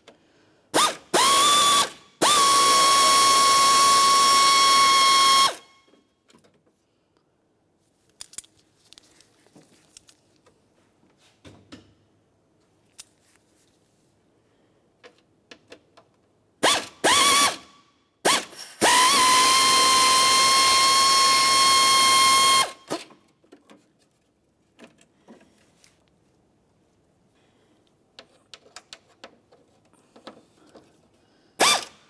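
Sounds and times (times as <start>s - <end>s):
air ratchet whine: 0.8s - 5.7s, 16.6s - 23.1s, 31.6s - 32.0s.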